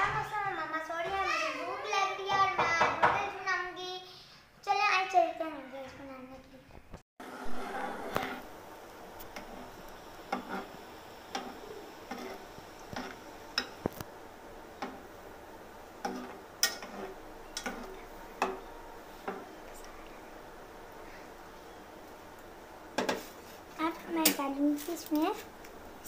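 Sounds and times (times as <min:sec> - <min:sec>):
dry noodles crackling in metal pot: 0:08.1 - 0:20.0, 0:22.0 - 0:26.0.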